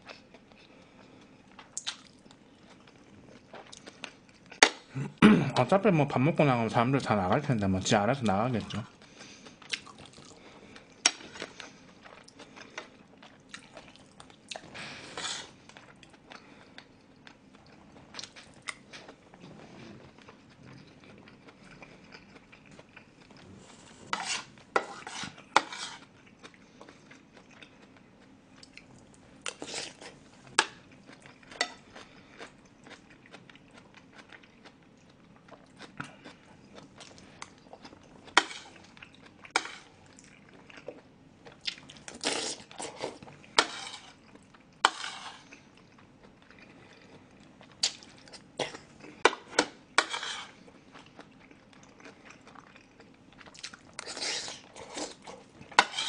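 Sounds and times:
chewing: 0:08.6 - 0:56.0
metal spoon scraping a dish: 0:15.1 - 0:15.5, 0:24.1 - 0:26.1, 0:39.5 - 0:39.9, 0:43.6 - 0:44.2, 0:44.8 - 0:45.5, 0:50.0 - 0:50.6, 0:55.8 - 0:56.0.

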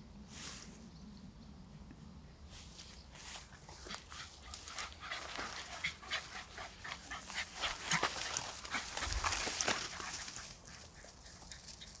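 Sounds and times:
plants rustling: 0:02.5 - 0:11.0
dog panting: 0:03.8 - 0:09.3.

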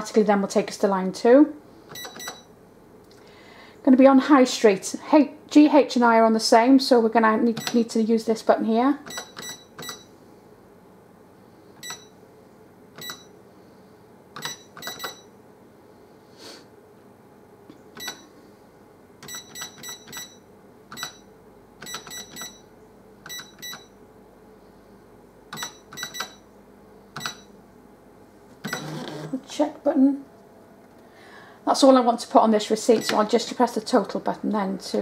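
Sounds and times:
cash register key beeps: 0:01.9 - 0:02.5, 0:07.5 - 0:07.9, 0:09.0 - 0:10.1, 0:11.8 - 0:12.1, 0:13.0 - 0:13.3, 0:14.4 - 0:15.3, 0:18.0 - 0:18.3, 0:19.2 - 0:24.0, 0:25.6 - 0:26.4, 0:27.2 - 0:27.5, 0:28.6 - 0:29.3, 0:33.0 - 0:33.3.

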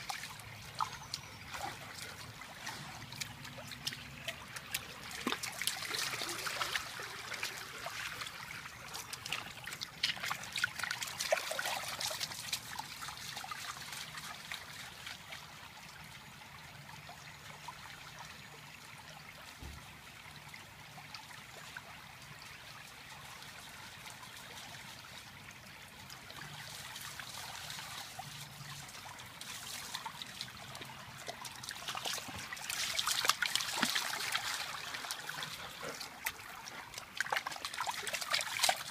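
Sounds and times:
dog splashing through water: 0:00.0 - 0:14.3, 0:26.6 - 0:38.9
creek water running over concrete: 0:00.0 - 0:38.9.

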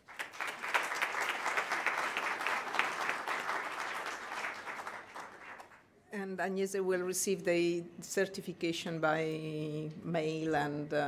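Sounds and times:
audience applause: 0:00.0 - 0:05.8.

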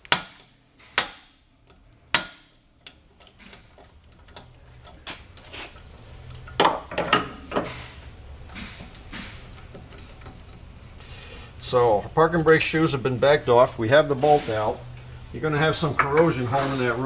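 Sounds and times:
hammer striking metal: 0:00.0 - 0:01.4, 0:02.2 - 0:02.6.

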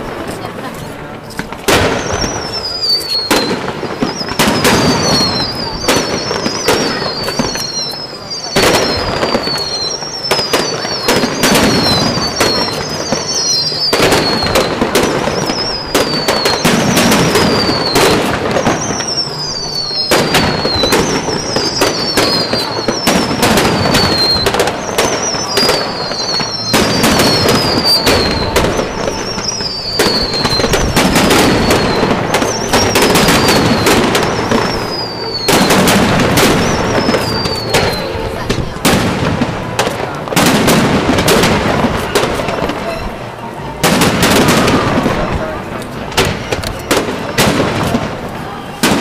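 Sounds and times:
fireworks bursting: 0:00.0 - 0:49.0
high falling whistle: 0:02.0 - 0:14.7, 0:15.3 - 0:35.8.

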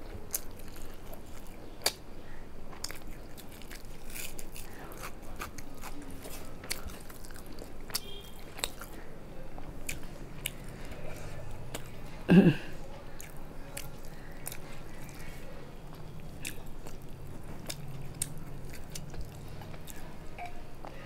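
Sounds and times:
person chewing food: 0:00.0 - 0:21.0
throaty vocal sound: 0:12.3 - 0:12.7.

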